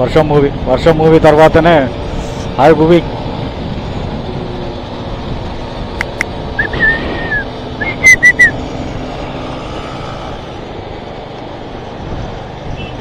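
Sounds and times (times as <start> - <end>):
wind and road noise: 0.0 - 13.0
person whistling: 6.6 - 8.6.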